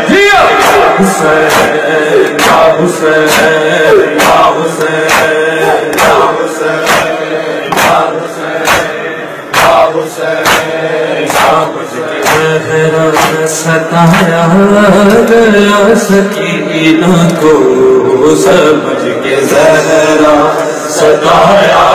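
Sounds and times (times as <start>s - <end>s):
man chanting over a microphone: 0.0s - 6.7s, 11.3s - 21.9s
chests being struck rhythmically: 0.0s - 15.3s.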